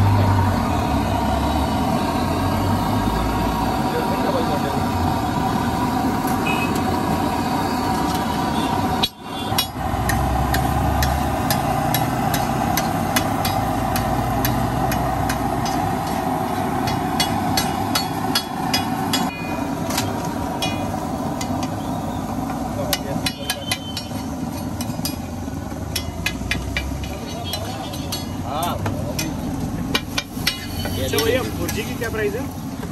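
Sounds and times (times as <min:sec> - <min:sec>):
eggs sizzling on a griddle: 0:05.8 - 0:32.9
spatulas clacking on griddle: 0:09.0 - 0:16.2, 0:16.8 - 0:21.7, 0:22.9 - 0:25.3, 0:25.9 - 0:32.0.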